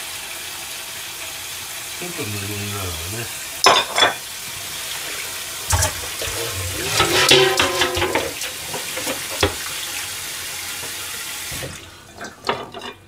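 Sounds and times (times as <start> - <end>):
pot clunking against sink: 5.7 - 9.6
tap water into metal sink: 5.7 - 10.0.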